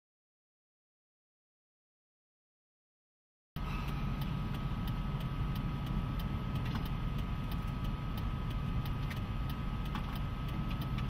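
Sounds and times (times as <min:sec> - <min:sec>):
vehicle engine rumble: 0:03.6 - 0:11.0
sharp ticks: 0:03.9 - 0:11.0.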